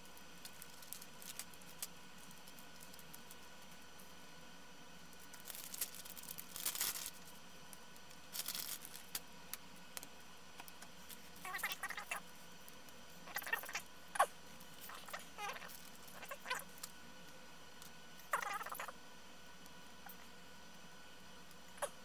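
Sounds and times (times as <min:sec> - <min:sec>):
plastic bags rustling and crinkling: 0:00.0 - 0:04.1, 0:05.1 - 0:09.2, 0:10.6 - 0:17.0.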